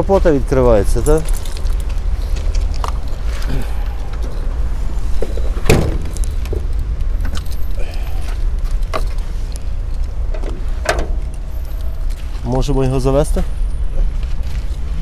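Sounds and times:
car keys jangling: 0.8s - 4.6s, 5.2s - 7.8s
latch clunk: 5.5s - 7.6s, 10.3s - 11.4s.

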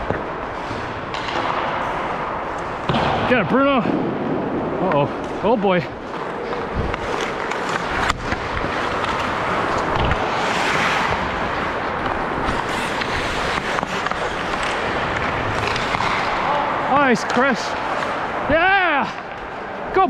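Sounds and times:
hockey sticks and puck clacking: 0.0s - 4.0s, 4.8s - 20.0s
skates hissing on ice: 7.8s - 14.9s.

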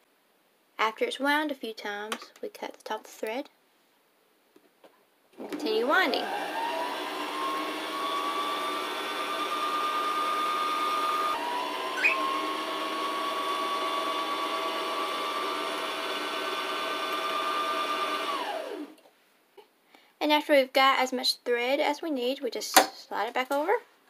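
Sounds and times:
sewing machine motor whining: 5.4s - 19.0s.

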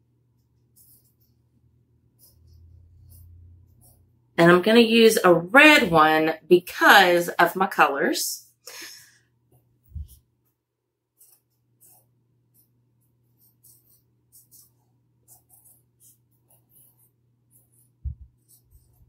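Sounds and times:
marker scratching on burlap: 0.4s - 4.2s, 11.1s - 19.0s.

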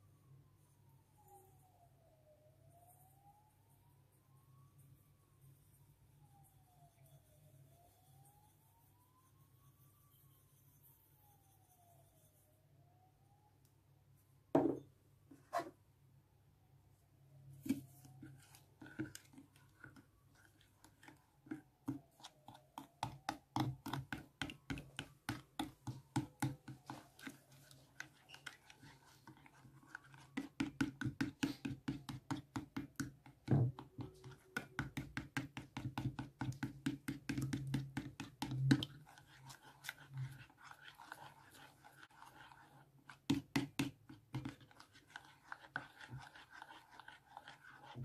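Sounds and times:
spoon scraping glass bowl: 26.9s - 30.6s, 37.4s - 48.0s.

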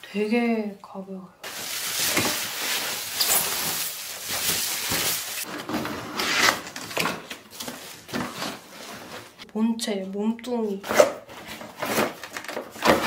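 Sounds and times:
plastic wrapping rustling: 1.4s - 9.4s
cardboard scraping: 1.8s - 9.4s, 10.8s - 13.0s.

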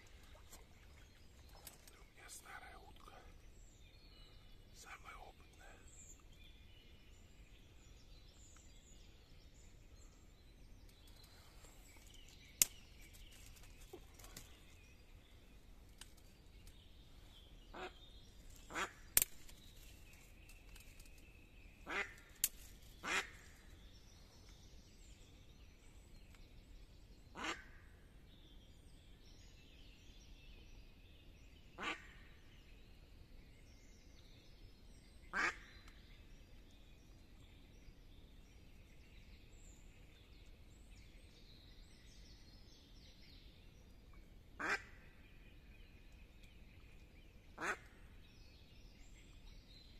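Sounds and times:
sharp clicks: 19.2s - 19.6s.

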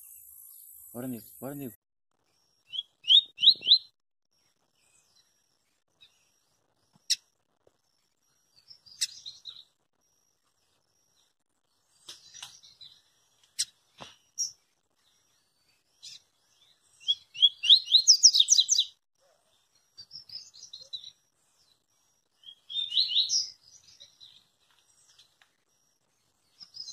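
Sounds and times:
bird chirping and singing: 2.7s - 3.9s, 8.5s - 9.7s, 11.2s - 19.0s, 19.6s - 25.4s, 26.2s - 26.9s.

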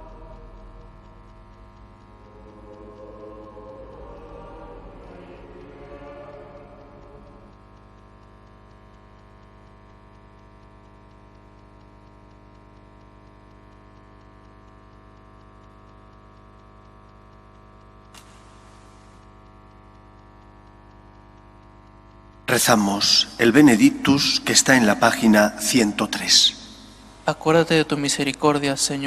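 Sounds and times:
electrical hum: 0.0s - 29.0s
burst of hiss: 18.2s - 19.3s.

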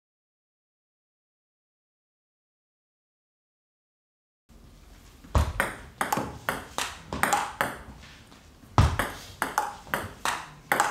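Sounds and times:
table tennis ball clicking: 5.6s - 7.9s, 8.9s - 10.9s.

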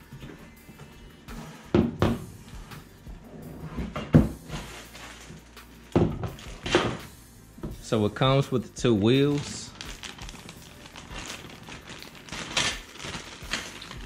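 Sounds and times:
background music: 0.0s - 14.0s
knocks and thuds on wooden floor: 1.7s - 2.3s, 4.0s - 4.4s, 6.0s - 7.0s
cardboard packaging handled: 4.4s - 7.0s, 9.2s - 14.0s.

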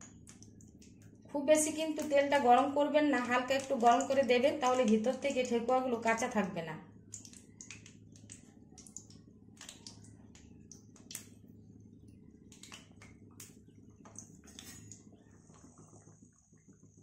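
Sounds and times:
steady low hum: 0.0s - 17.0s
oil crackling and popping: 1.8s - 6.4s, 7.1s - 11.5s.

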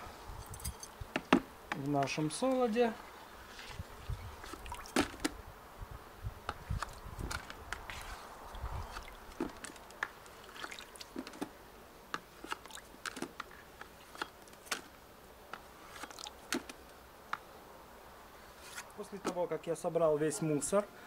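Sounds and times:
small wet splashes and drips: 4.4s - 5.1s, 7.8s - 11.4s, 12.5s - 13.1s, 16.0s - 16.8s.

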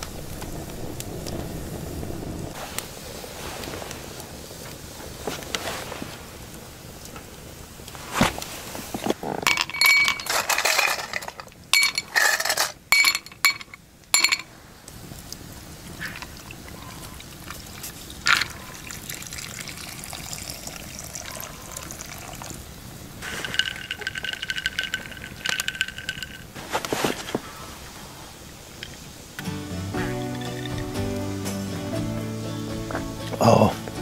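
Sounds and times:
ice cubes clinking into glass: 9.4s - 14.5s, 23.2s - 26.6s, 30.3s - 31.0s
liquid pouring over ice: 16.1s - 26.6s.

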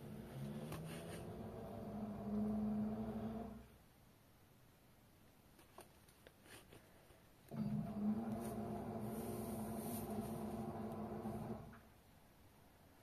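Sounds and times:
washing machine motor humming: 0.0s - 3.7s, 7.5s - 11.9s.

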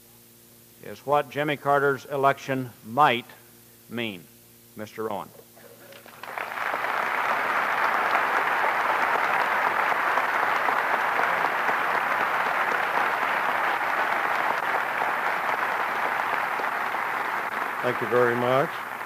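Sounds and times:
audience applauding: 5.8s - 19.0s.

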